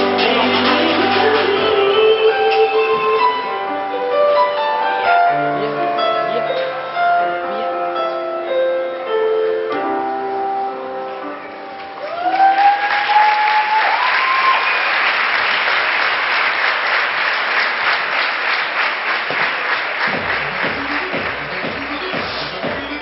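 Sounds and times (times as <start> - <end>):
music with a beat: 0.0 - 3.3, 20.1 - 23.0
music: 0.0 - 12.8, 20.0 - 23.0
audience applause: 12.0 - 23.0
crowd cheering: 12.0 - 23.0.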